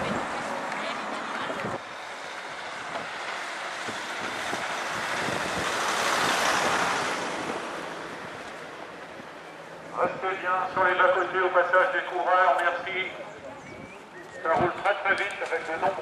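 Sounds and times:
car driving past: 0:00.0 - 0:10.0.

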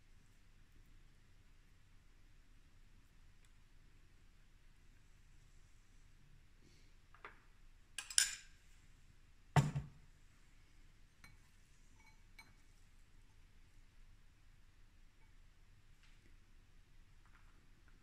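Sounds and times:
metal spoon clinking on glass bowl: 0:08.0 - 0:08.5, 0:11.2 - 0:12.7.

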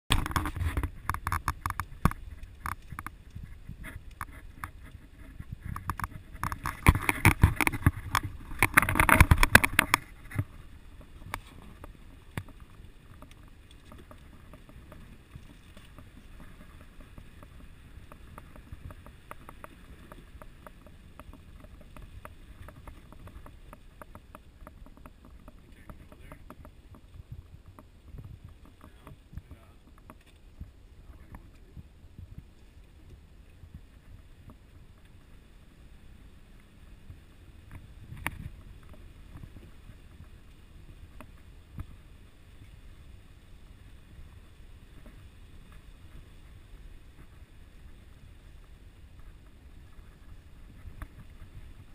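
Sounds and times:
clicks and knocks: 0:05.6 - 0:10.6.

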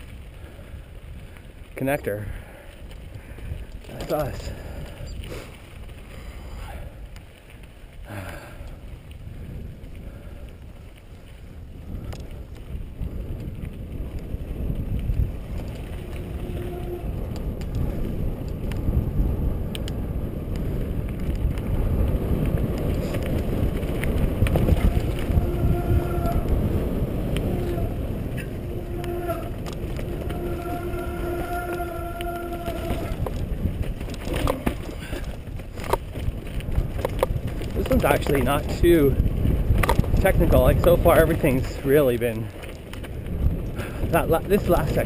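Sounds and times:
bike clicks and rattles: 0:00.0 - 0:45.0
bike tyres rumbling over dirt: 0:00.0 - 0:45.0
wind on the microphone: 0:00.0 - 0:45.0
steady humming tone: 0:15.4 - 0:18.3, 0:24.4 - 0:33.6.

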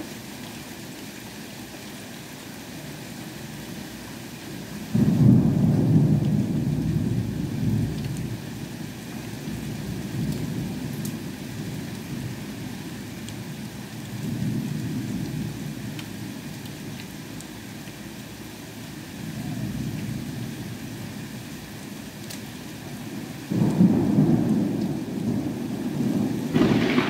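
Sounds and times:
heavy rain and hail: 0:00.0 - 0:27.0
thunder rumbling: 0:04.9 - 0:08.4, 0:23.1 - 0:27.0
sharp ticks of hail: 0:21.8 - 0:22.5, 0:23.5 - 0:25.3, 0:26.5 - 0:27.0.

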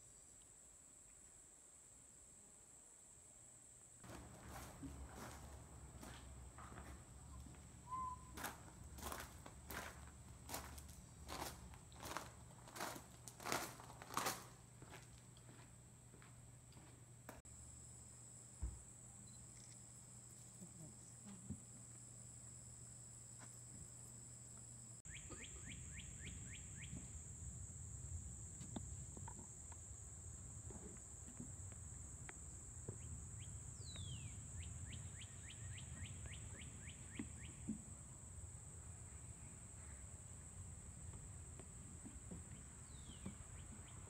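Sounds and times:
falling whistle: 0:07.8 - 0:08.6
bird chirping: 0:25.1 - 0:27.0.

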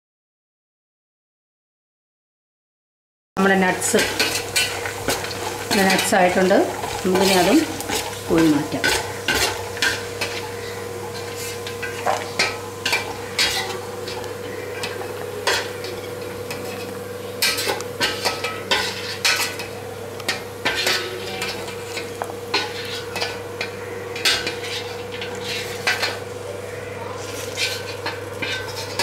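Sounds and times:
light sizzling: 0:03.4 - 0:29.0
metal skimmer clinking on steel pot: 0:27.5 - 0:29.0.

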